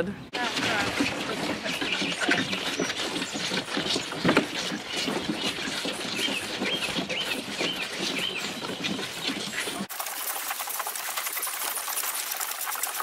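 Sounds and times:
birds chirping: 0:00.0 - 0:09.9.

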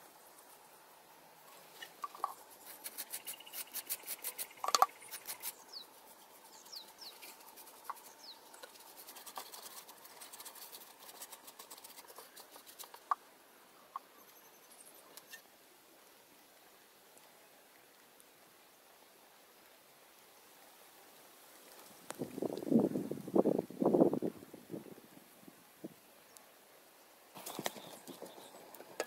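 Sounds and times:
stick scratching in bamboo tube: 0:01.8 - 0:13.2.

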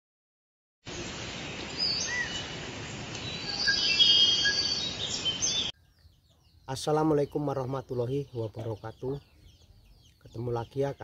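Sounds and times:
bird chirps and whistles: 0:01.8 - 0:02.5, 0:03.2 - 0:05.8.

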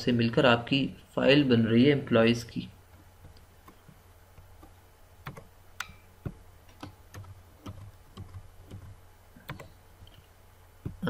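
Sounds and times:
low steady hum: 0:00.0 - 0:11.0
computer mouse clicks: 0:02.9 - 0:10.2.

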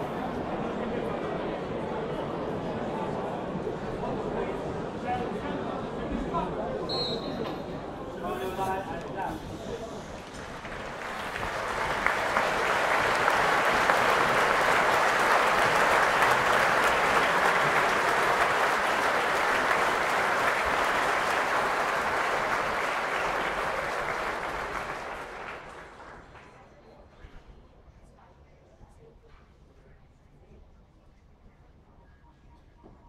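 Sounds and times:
stadium crowd applauding: 0:09.6 - 0:27.0.

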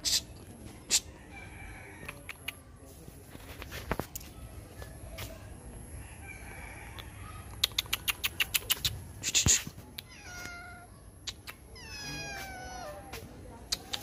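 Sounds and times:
sharp clicks: 0:07.0 - 0:10.1
cat meowing: 0:10.0 - 0:11.0, 0:11.7 - 0:13.1.

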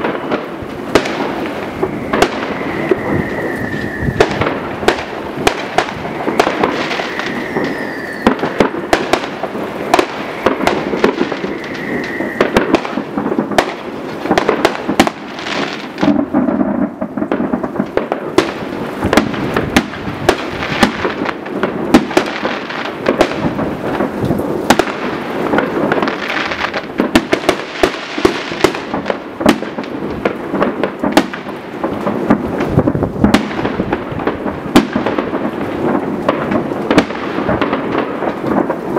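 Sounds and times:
fireworks bangs and crackles: 0:00.0 - 0:38.9
rumble of distant fireworks: 0:00.0 - 0:38.9
thin firework whistle: 0:01.6 - 0:09.3, 0:10.0 - 0:13.1.

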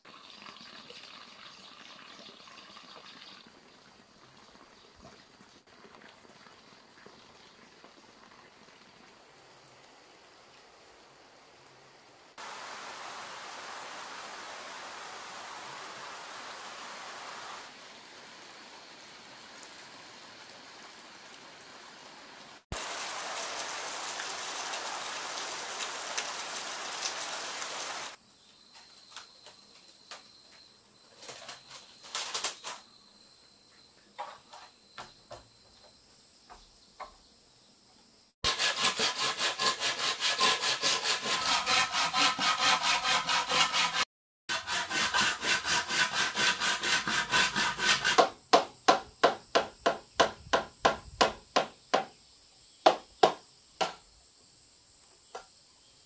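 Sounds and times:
steady hiss: 0:08.8 - 0:28.2
insects clicking and chirping: 0:28.2 - 0:38.3
saw cutting bamboo: 0:38.4 - 0:48.4.

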